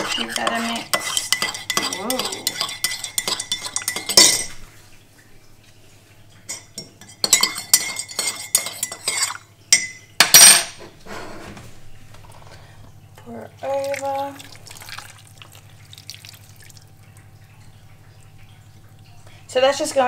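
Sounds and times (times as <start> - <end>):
spoon clattering: 0.0 - 4.6, 6.5 - 10.6.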